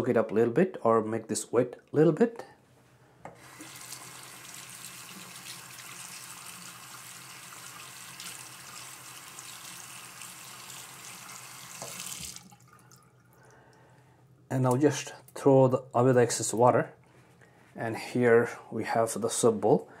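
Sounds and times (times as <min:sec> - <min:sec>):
faucet water splashing into sink: 0:03.4 - 0:13.4.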